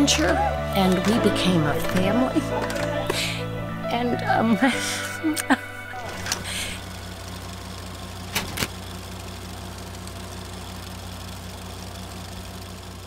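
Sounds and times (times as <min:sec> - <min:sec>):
low pulsing hum: 0:00.0 - 0:09.4.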